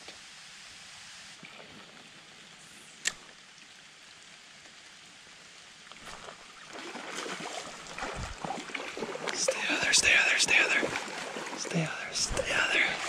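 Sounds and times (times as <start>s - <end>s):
light rain on a creek: 0.0s - 13.0s
low thumps: 8.0s - 8.5s.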